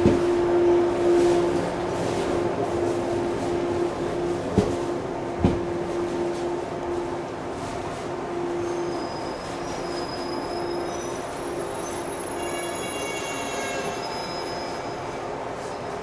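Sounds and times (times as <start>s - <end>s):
electric train pulsing hum: 0.0s - 9.6s.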